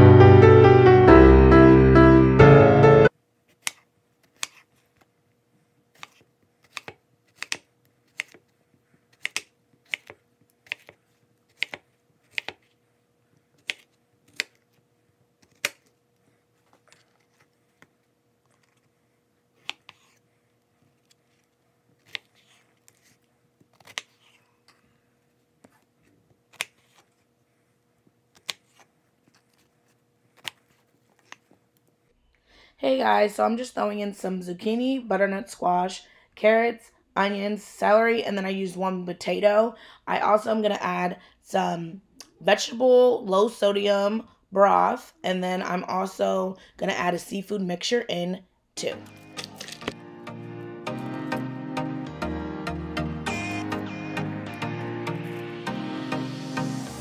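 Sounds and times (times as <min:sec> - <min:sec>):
knife chopping on wooden board: 0:09.1 - 0:12.6.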